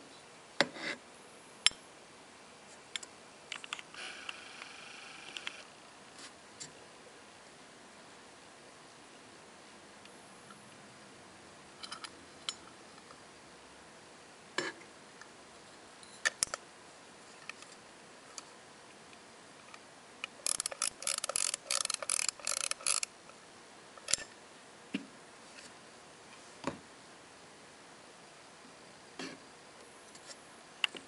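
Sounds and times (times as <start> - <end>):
pocket watch metal clicks: 20.4 - 23.1.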